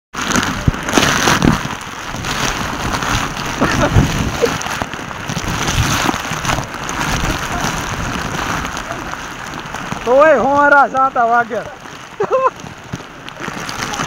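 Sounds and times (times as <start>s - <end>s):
heavy rain on stone steps: 0.1s - 14.0s
wind buffeting microphone: 0.2s - 10.7s.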